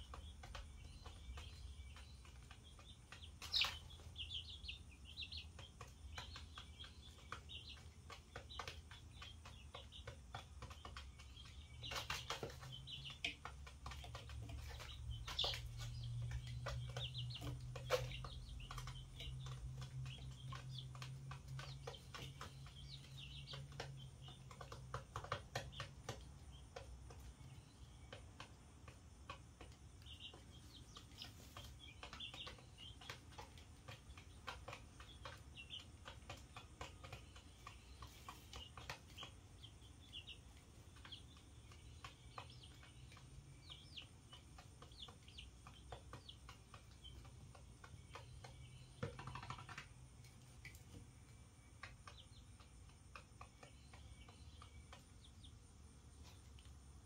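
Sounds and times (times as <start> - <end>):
chicks peeping: 0.0 - 57.0
pecking and scratching taps: 0.0 - 57.0.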